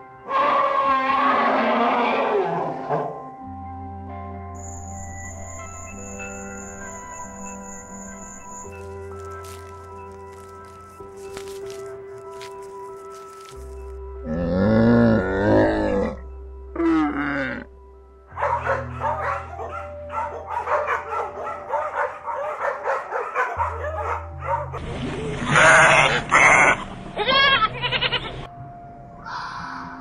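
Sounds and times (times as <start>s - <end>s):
background music: 0.0s - 30.0s
camel groaning calls: 14.2s - 17.7s
dog calling: 18.4s - 24.8s.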